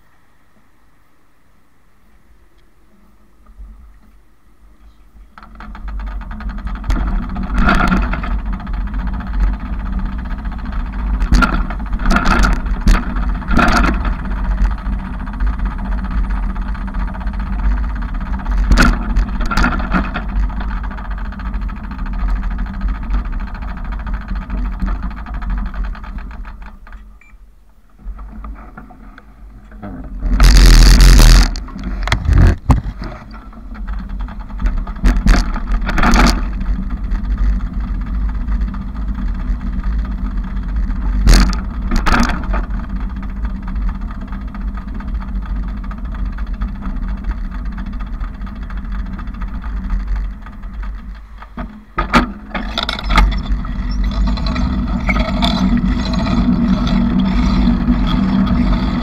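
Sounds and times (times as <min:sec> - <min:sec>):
bicycle riding rumble: 0:02.0 - 0:59.0
bike knocks and rattles: 0:04.9 - 0:59.0.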